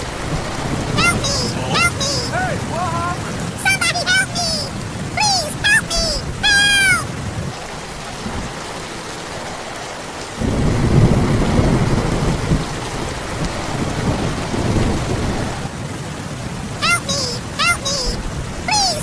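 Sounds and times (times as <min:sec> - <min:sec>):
low rumble of thunder: 0:00.0 - 0:01.0, 0:10.4 - 0:16.7
steady rain falling: 0:00.0 - 0:19.0.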